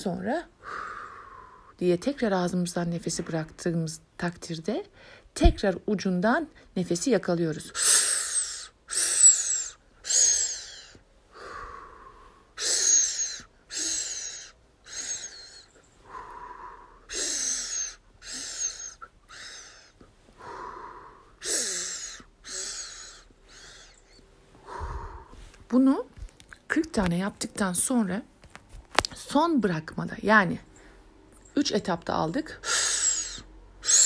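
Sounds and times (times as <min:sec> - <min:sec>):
woman breathing in sharply: 0:00.6 - 0:01.7, 0:07.8 - 0:25.6
woman breathing out through mouth: 0:07.8 - 0:25.5.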